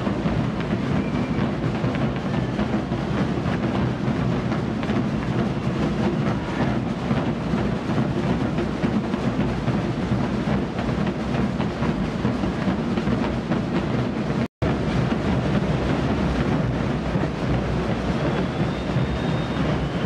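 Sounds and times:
snare drums rattling: 0:00.0 - 0:20.0.

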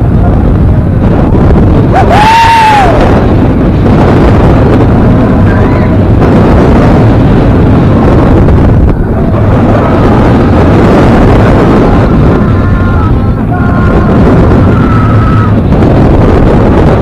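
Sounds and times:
wind rushing on microphone: 0:00.0 - 0:17.0
person screaming: 0:02.0 - 0:03.0.

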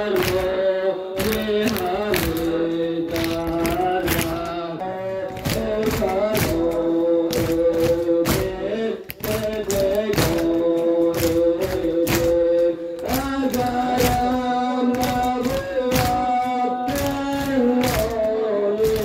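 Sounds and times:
rhythmic chest-beating: 0:00.0 - 0:19.0
young men chanting: 0:00.0 - 0:19.0.

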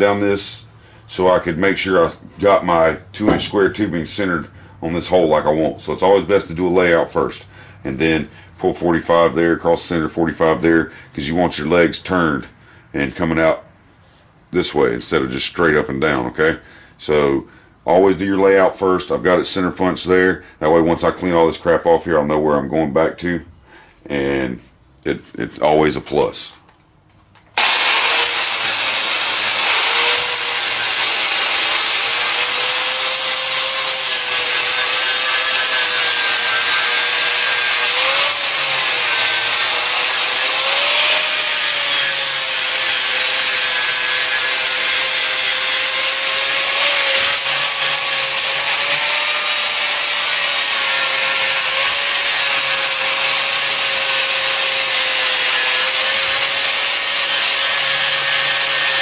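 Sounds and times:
angle grinder grinding metal: 0:27.6 - 0:59.0.

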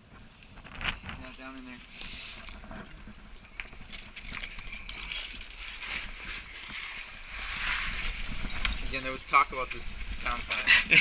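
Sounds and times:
climbing gear clinking: 0:00.8 - 0:11.0
hand scraping against rock: 0:03.7 - 0:09.2.

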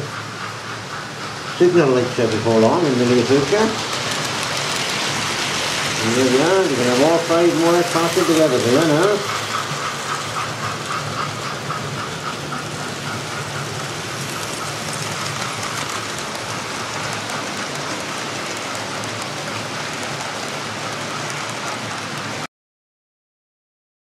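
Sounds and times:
model trains running: 0:00.0 - 0:22.5.

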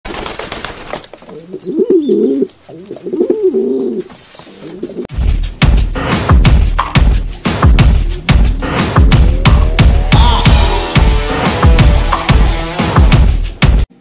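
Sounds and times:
pigeon cooing: 0:01.3 - 0:05.1
music with pulsing bass beat: 0:05.1 - 0:13.9.

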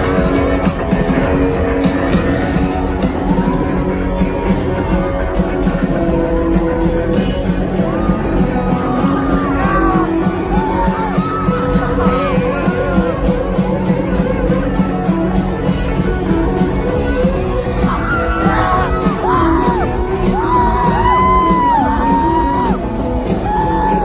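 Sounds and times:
rock band playing live: 0:00.0 - 0:24.0.

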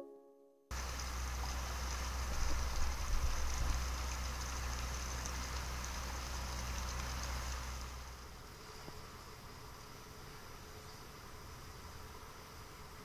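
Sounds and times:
water running: 0:00.7 - 0:08.1.

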